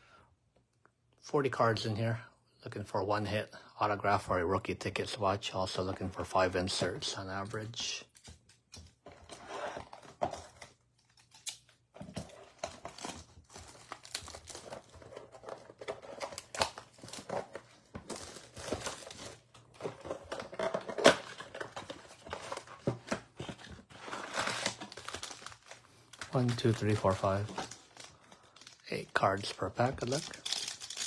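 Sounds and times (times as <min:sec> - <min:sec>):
cardboard tearing and rustling: 0:09.1 - 0:28.2, 0:29.8 - 0:31.0.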